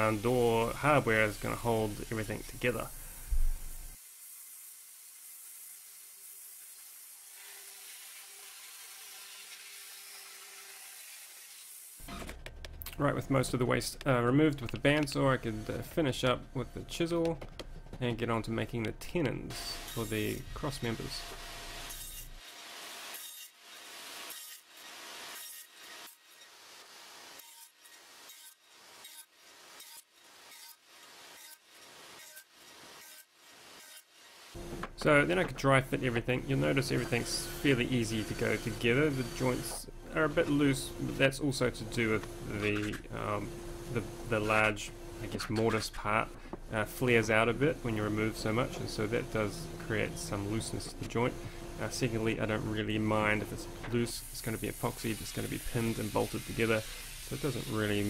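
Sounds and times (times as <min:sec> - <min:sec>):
bandsaw cutting through wood: 0:03.9 - 0:12.2, 0:19.5 - 0:34.6, 0:35.2 - 0:45.7, 0:46.7 - 0:58.0.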